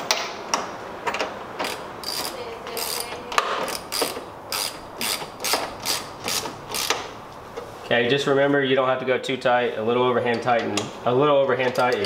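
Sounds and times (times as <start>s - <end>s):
socket ratchet clicking: 1.1s - 7.1s.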